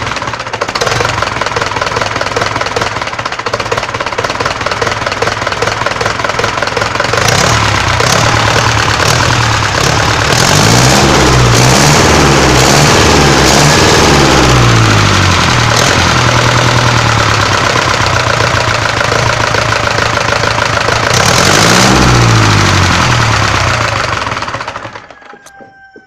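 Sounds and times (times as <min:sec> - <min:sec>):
tractor diesel engine running: 0:00.0 - 0:26.0.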